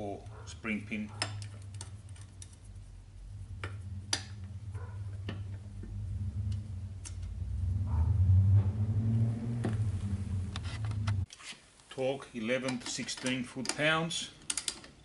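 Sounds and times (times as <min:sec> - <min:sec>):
low hum: 0:00.0 - 0:11.3
small metallic clicks: 0:12.6 - 0:15.0.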